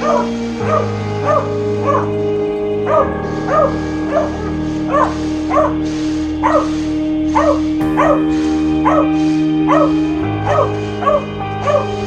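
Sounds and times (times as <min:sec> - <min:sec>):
background music with held chords: 0:00.0 - 0:12.0
dog barking: 0:02.9 - 0:05.8, 0:06.4 - 0:06.8, 0:07.4 - 0:08.2, 0:09.7 - 0:09.9, 0:10.5 - 0:11.9.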